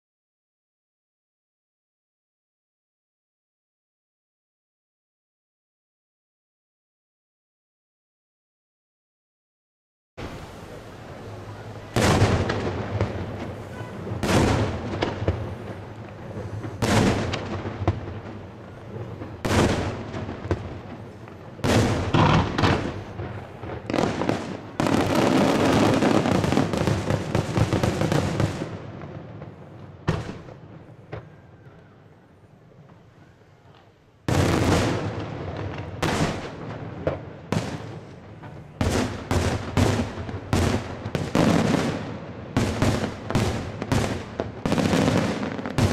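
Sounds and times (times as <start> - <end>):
fireworks bangs: 10.2 - 45.9.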